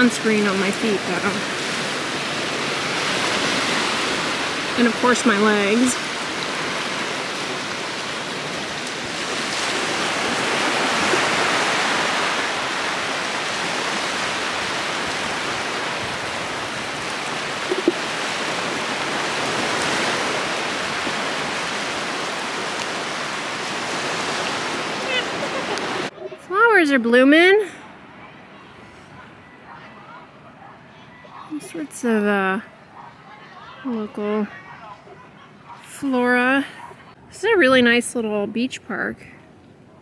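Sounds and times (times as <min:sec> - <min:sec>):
surf washing over sand: 0:00.0 - 0:26.3.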